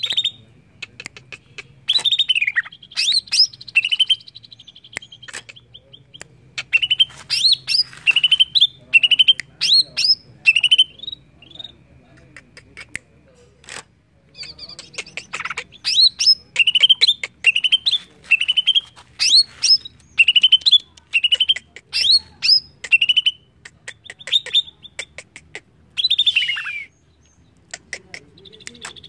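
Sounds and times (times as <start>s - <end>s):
bird singing chirps and whistles: 1.9s - 5.2s, 26.0s - 27.4s.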